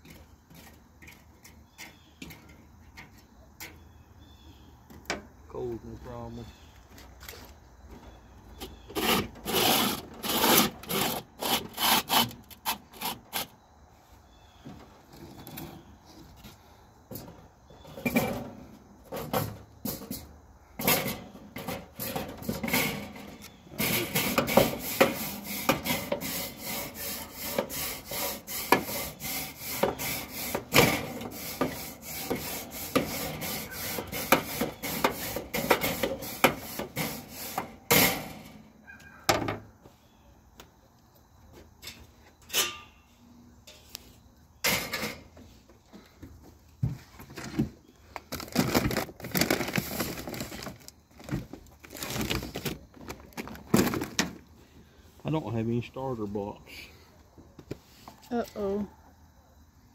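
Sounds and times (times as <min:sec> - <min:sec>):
grill brush scrubbing metal grate: 0:08.8 - 0:13.5, 0:20.8 - 0:38.5
grate clanking: 0:20.8 - 0:38.4.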